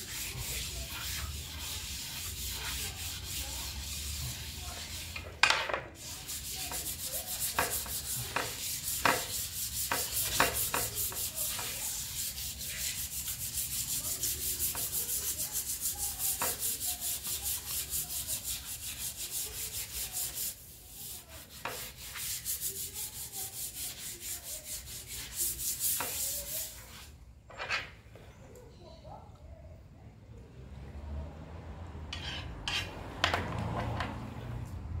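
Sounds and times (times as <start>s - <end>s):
sandpaper rubbing wet metal: 0.0s - 5.3s, 6.0s - 27.1s.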